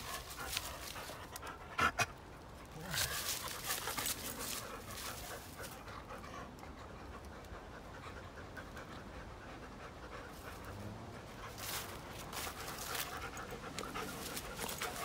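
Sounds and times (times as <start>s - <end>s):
paws scuffling in dry leaves: 0.0s - 1.6s, 2.6s - 6.1s, 11.3s - 15.0s
dogs panting: 0.0s - 15.0s.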